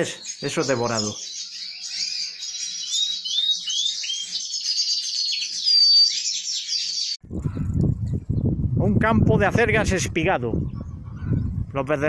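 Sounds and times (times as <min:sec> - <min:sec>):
finches chirping: 0:00.0 - 0:07.2.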